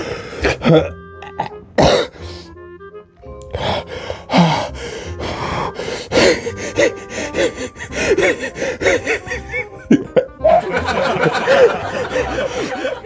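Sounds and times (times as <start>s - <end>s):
man breathing hard and gasping: 0.0s - 0.7s, 1.9s - 2.7s, 3.5s - 9.8s, 11.5s - 13.0s
man laughing: 6.9s - 13.0s.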